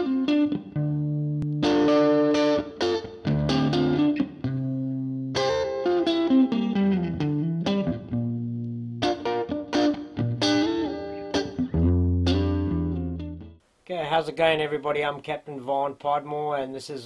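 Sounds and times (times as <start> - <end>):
electric guitar plucked notes: 0.0 - 13.6
held bass notes: 11.5 - 13.6.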